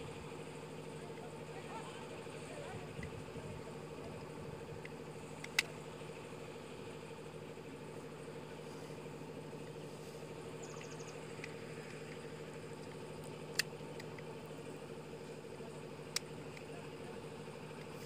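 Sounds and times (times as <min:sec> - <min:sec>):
steady engine-like hum: 0:00.0 - 0:18.0
sharp clicks: 0:04.8 - 0:05.8, 0:10.6 - 0:14.3, 0:16.0 - 0:16.7.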